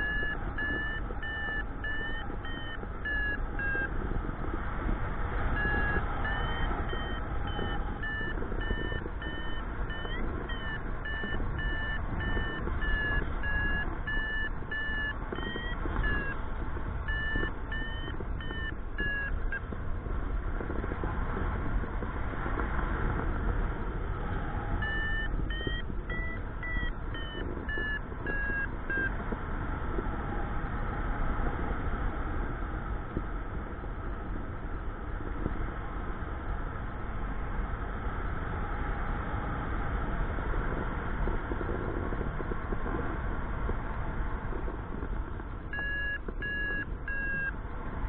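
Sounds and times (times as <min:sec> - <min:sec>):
high-pitched variometer beeping: 0:00.0 - 0:04.5, 0:05.4 - 0:19.8, 0:24.5 - 0:29.2, 0:45.6 - 0:47.6
wind noise on microphone: 0:00.0 - 0:48.0.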